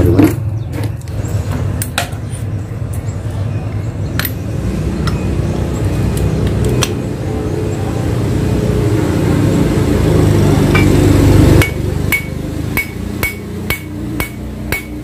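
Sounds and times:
engine running: 0.0s - 15.0s
hammer ringing on steel: 11.6s - 15.0s.

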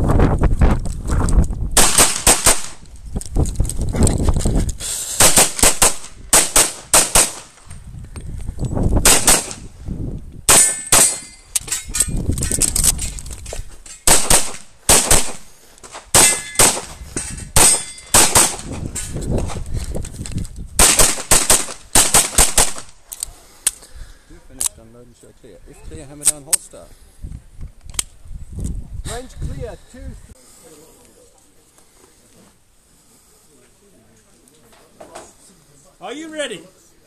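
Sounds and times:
rustling and footsteps: 0.0s - 1.8s, 2.6s - 5.0s, 6.0s - 10.4s, 11.2s - 20.8s, 30.4s - 36.9s
pistol shots fired rapidly: 1.8s - 2.8s, 5.2s - 7.5s, 9.0s - 9.6s, 14.1s - 15.4s, 17.6s - 18.6s, 20.8s - 22.9s
bullets ringing on steel plates: 10.5s - 12.1s, 16.2s - 18.2s.

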